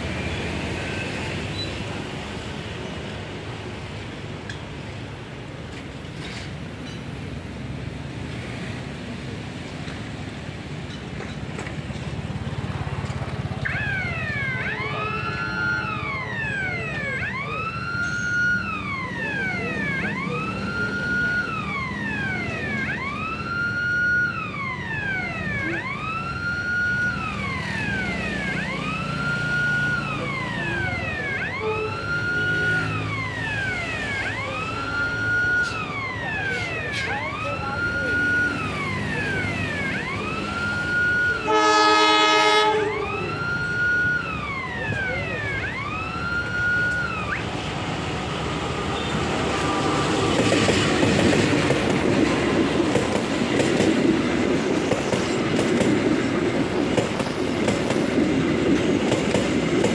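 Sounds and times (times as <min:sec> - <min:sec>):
electronic siren wailing: 0:13.4 - 0:53.4.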